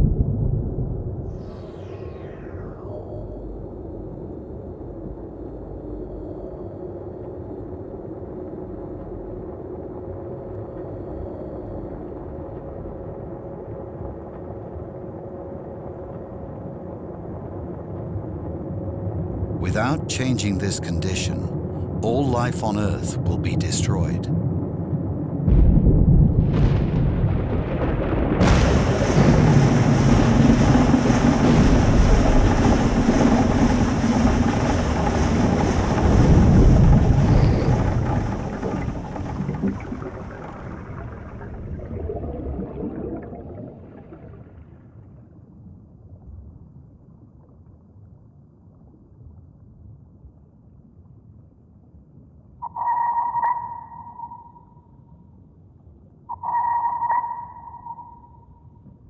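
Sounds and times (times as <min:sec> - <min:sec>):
faint low drone: 0:00.0 - 0:43.4
deep noisy rumble: 0:24.4 - 0:43.5.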